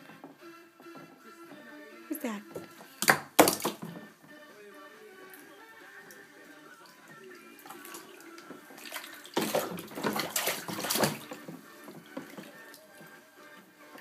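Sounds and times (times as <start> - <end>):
baby splashing bathwater: 2.8 - 4.0, 5.1 - 13.5
water sloshing: 5.3 - 14.0.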